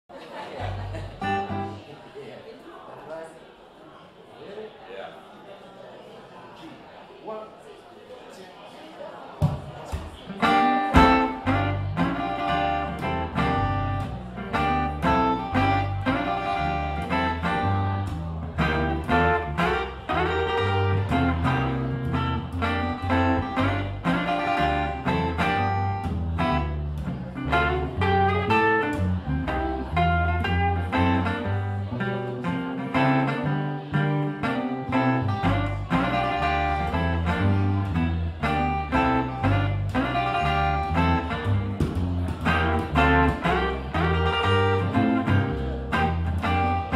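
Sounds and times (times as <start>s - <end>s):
plucked double bass: 0.6s - 1.8s, 9.4s - 46.9s.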